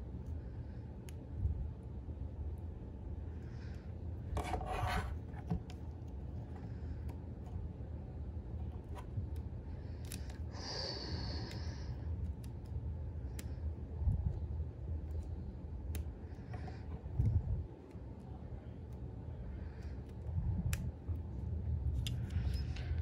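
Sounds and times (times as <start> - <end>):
low steady hum: 0.0 - 23.0
plastic scraping: 4.4 - 5.8.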